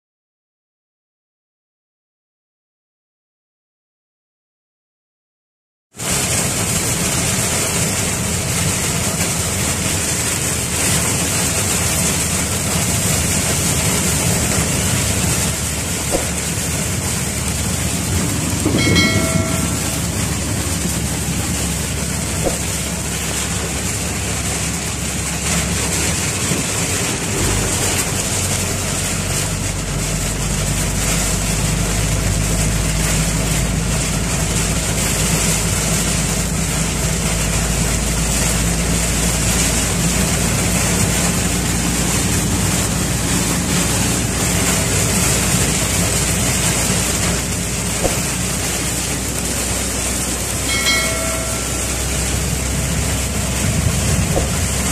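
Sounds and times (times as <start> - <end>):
engine hum inside vehicle: 6.0 - 54.9
rain and tyre spray hiss: 6.0 - 54.9.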